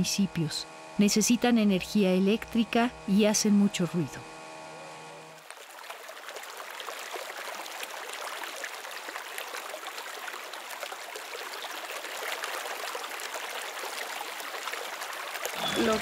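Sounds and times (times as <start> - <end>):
stream rushing over rocks: 5.6 - 16.0.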